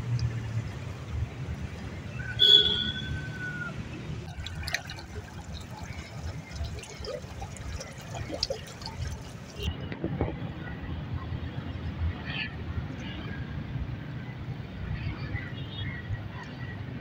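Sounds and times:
flooded river rushing: 4.2 - 9.7.

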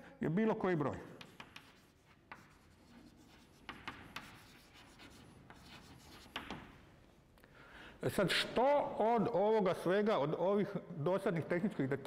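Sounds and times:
chalk tapping on blackboard: 0.8 - 6.8
chalk scratching on blackboard: 1.0 - 6.7.

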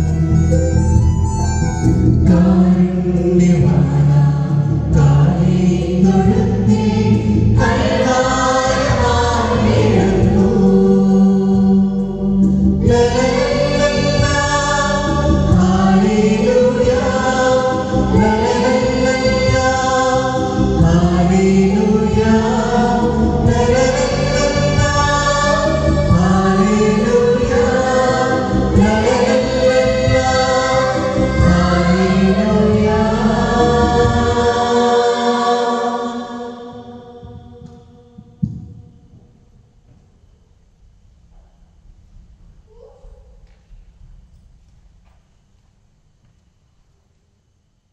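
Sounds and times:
mixed choir singing a carol: 2.2 - 38.4.

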